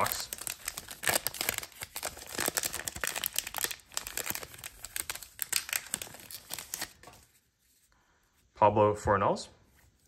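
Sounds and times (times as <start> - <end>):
plastic wrapper crinkling and tearing: 0.0 - 7.5.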